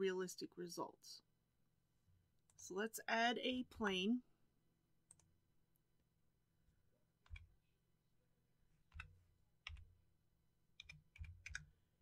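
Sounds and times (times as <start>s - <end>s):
keyboard and mouse clicks: 5.1s - 5.3s, 7.2s - 7.6s, 8.9s - 9.9s, 10.8s - 11.8s.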